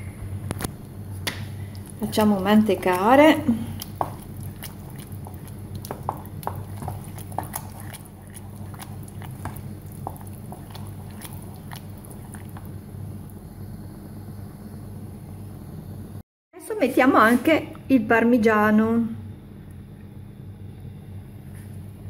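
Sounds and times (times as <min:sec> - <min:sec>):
steady low hum: 0:00.0 - 0:22.0
spoon stirring thick risotto: 0:01.6 - 0:13.4.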